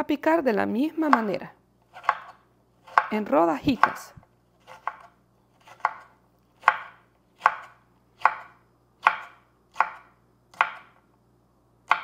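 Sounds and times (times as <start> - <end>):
knife chopping on wooden board: 1.9 - 11.0.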